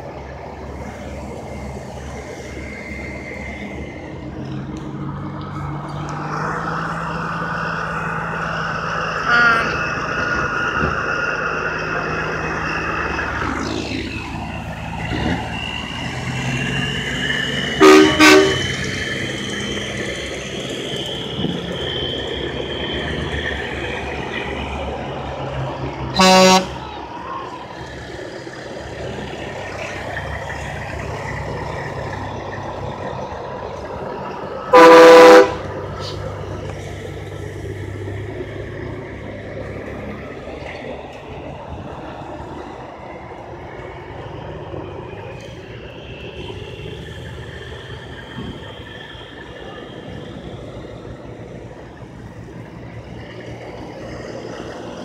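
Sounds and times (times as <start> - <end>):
diesel truck engines rolling past: 0.0 - 55.0
truck air horn blasts: 9.2 - 9.9, 17.8 - 18.8, 26.1 - 26.8, 34.7 - 35.8.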